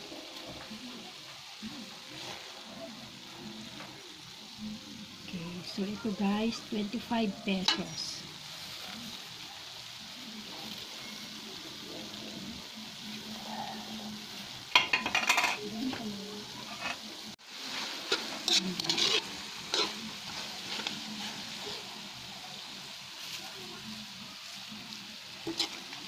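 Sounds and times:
food sizzling in oil: 0.0 - 26.0
metal spoon scraping a wok: 16.6 - 22.0, 25.4 - 26.0.

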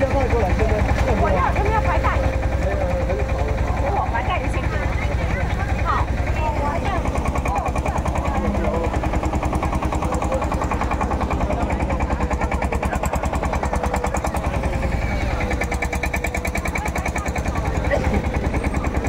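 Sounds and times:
boat diesel engine chugging: 0.0 - 19.0.

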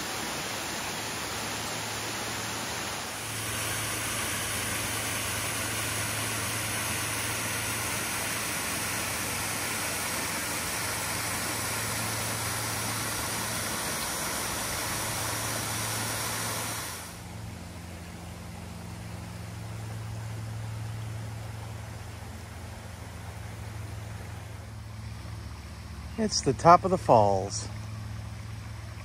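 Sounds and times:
waterfall rushing: 0.0 - 17.4
low hum: 0.1 - 29.0.

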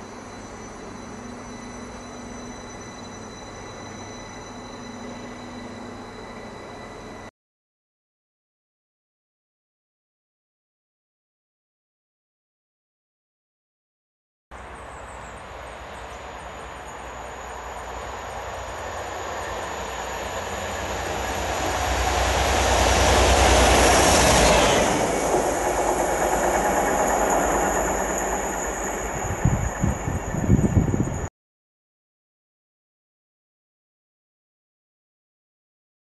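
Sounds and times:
diesel locomotive passing: 14.6 - 31.3
wind buffeting microphone: 29.0 - 31.3.

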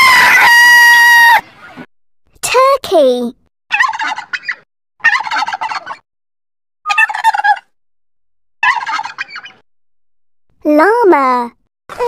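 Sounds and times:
turkey gobbling: 3.7 - 6.0, 6.9 - 7.8, 8.6 - 9.6.

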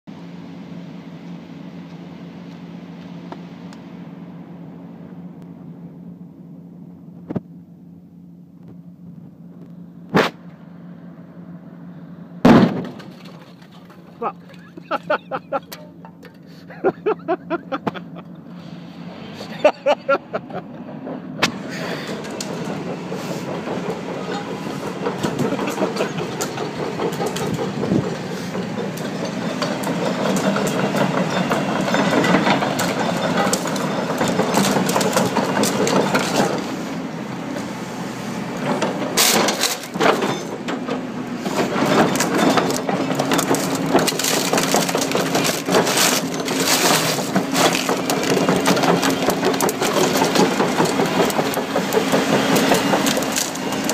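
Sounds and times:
diesel engine running: 0.1 - 53.9
plastic cracking and splintering: 42.7 - 52.0.

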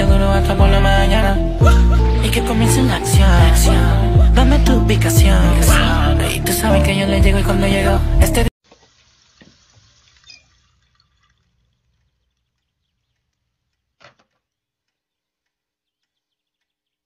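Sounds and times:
water trickling from tap into cup: 8.8 - 12.6.

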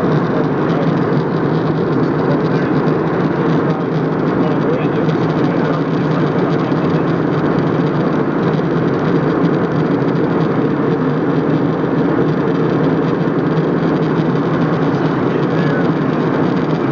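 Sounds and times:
airliner cabin drone: 0.0 - 16.9.

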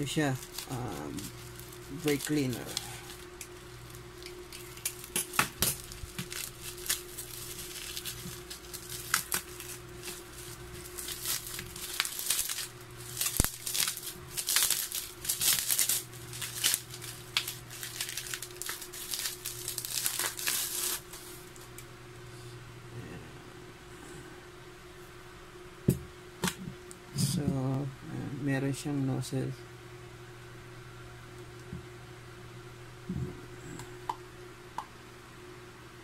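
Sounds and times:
plastic wrap crinkling and tearing: 0.0 - 21.8
steady low hum: 0.0 - 36.0.

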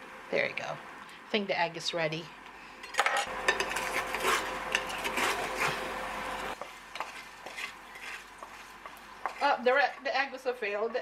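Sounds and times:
steady hum: 0.0 - 11.0
eggs sizzling: 2.5 - 11.0
spatula scraping a pan: 3.0 - 11.0.

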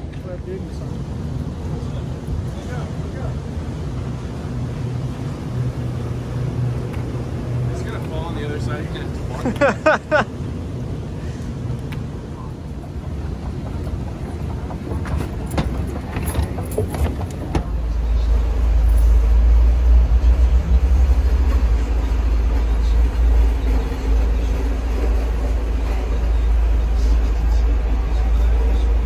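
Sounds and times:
low rumble in passenger cabin: 0.0 - 29.0.

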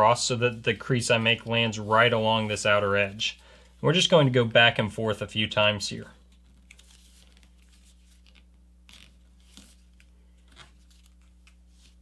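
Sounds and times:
low steady hum: 0.0 - 12.0
paper rustling and crinkling: 6.3 - 12.0.

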